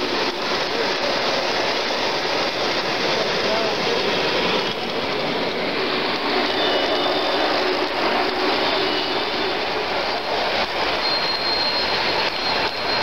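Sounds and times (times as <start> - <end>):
model train wheels rumbling on rail: 0.0 - 13.0
faint high squeal: 10.9 - 13.0.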